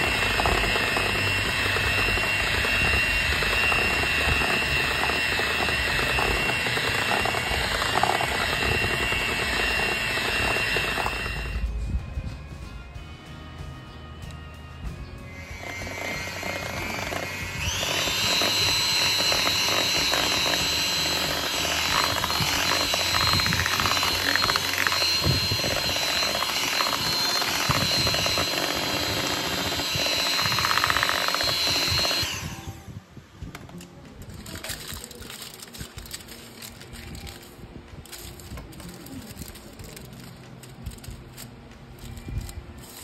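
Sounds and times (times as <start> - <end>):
electric hand mixer whining: 0.0 - 11.7, 15.3 - 33.0.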